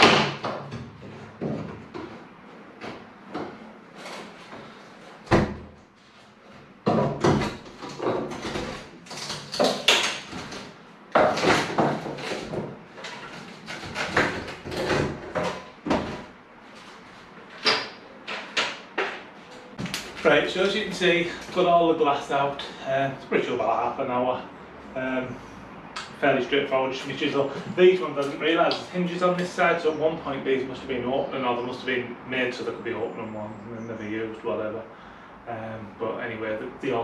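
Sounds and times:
wood knocking creaking and clattering: 0.0 - 5.7, 6.5 - 16.3.

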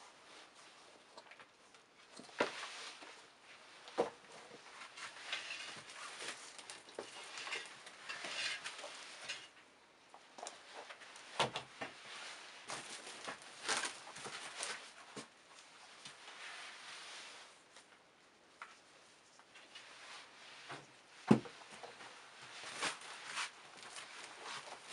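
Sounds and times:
shoes rustling on a table: 20.2 - 24.9.

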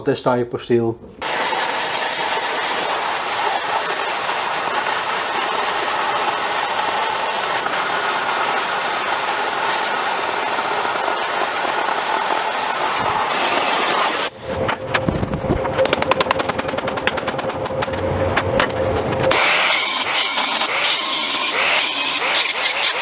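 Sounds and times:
gas torch hissing: 1.2 - 14.6.

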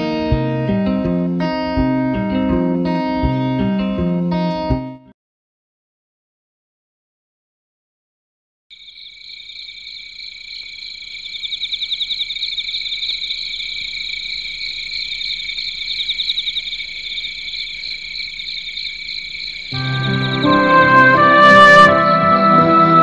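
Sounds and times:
high-pitched trilling night animals: 8.7 - 20.7.

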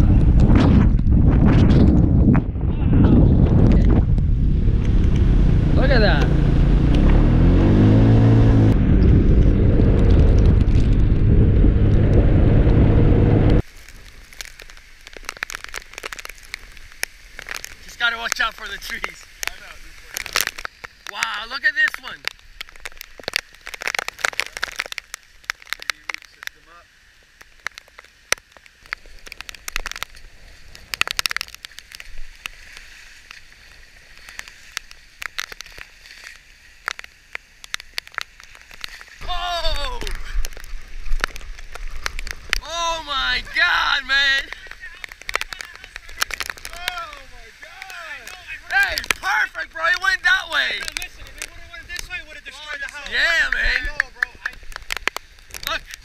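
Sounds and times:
wind buffeting microphone: 0.0 - 13.6
rain hitting camera: 0.0 - 56.0
vehicle driving on wet road: 3.1 - 56.0
water splashing: 3.2 - 56.0.

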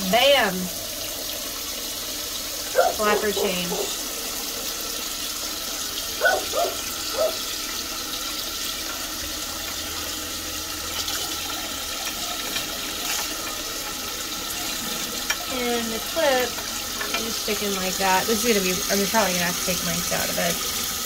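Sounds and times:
water hissing into toilet tank: 0.0 - 21.0.

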